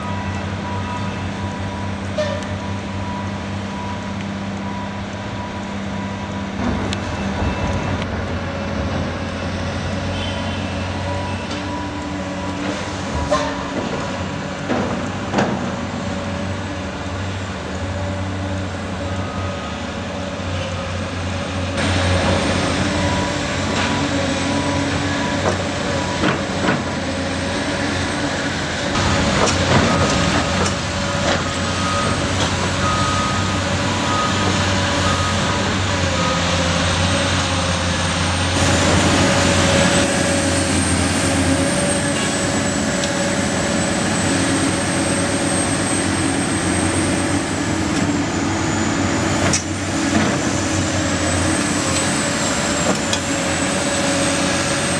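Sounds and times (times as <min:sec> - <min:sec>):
reversing alarm beeps: 0:00.0 - 0:08.0, 0:10.1 - 0:12.6, 0:19.2 - 0:19.9, 0:22.8 - 0:26.4, 0:29.8 - 0:36.7
heavy diesel engines running: 0:00.0 - 0:54.9.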